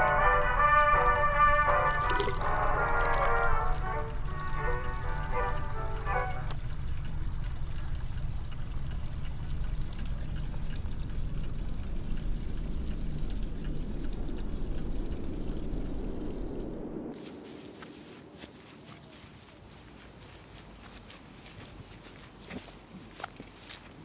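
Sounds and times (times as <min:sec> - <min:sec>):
held music notes: 0:00.0 - 0:08.6
tap water running into sink: 0:00.0 - 0:14.2.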